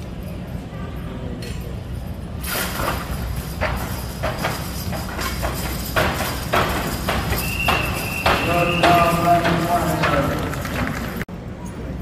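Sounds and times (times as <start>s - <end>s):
heavy hoof thuds: 3.6s - 11.1s.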